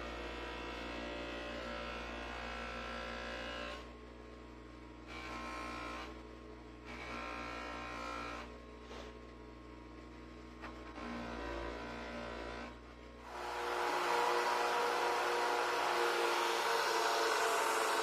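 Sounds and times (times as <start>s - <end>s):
bench grinder motor hum: 13.2s - 18.0s.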